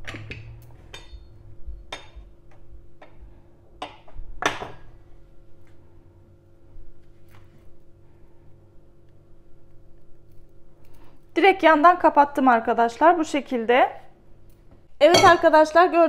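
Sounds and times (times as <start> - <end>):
faint steady hum: 0.0 - 16.0
metal utensil tapping countertop: 15.1 - 15.5.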